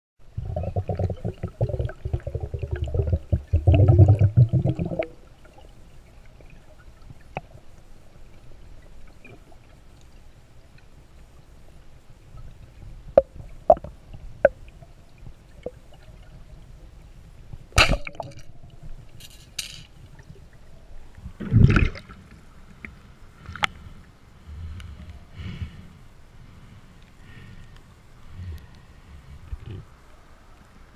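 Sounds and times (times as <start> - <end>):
water rushing underwater: 0.2 - 9.8, 20.0 - 23.4
speargun firing: 17.8 - 18.2.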